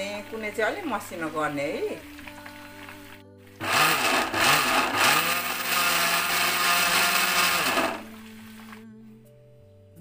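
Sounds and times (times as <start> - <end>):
electric grinder grinding rice: 3.6 - 8.1.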